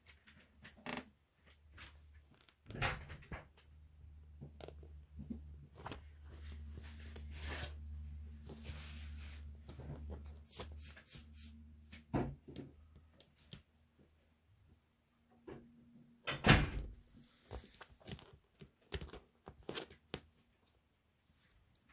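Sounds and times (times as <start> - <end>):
kittens scuffling on pet bed: 5.1 - 11.4.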